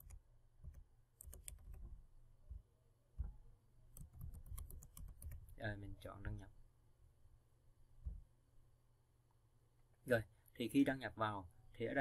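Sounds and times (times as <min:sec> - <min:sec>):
typing on computer keyboard: 0:00.0 - 0:01.9, 0:03.9 - 0:05.5.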